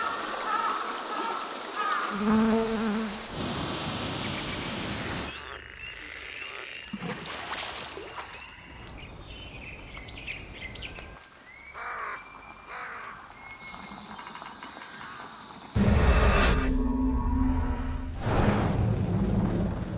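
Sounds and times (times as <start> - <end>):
rushing water: 0.0 - 2.3
bird calls and chirps: 8.1 - 15.8.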